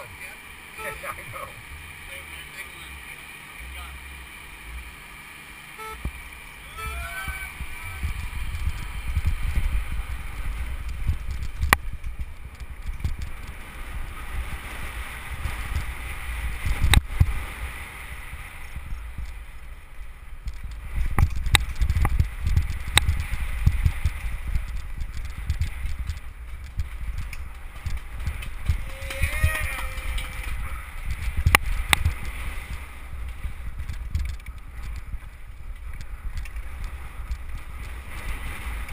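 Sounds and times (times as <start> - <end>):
wind buffeting microphone: 6.0 - 38.9
tyres rumbling on dirt: 6.1 - 38.9
person shouting: 6.7 - 8.0, 28.8 - 30.4
bike knocks and rattles: 10.7 - 13.7, 20.4 - 38.9.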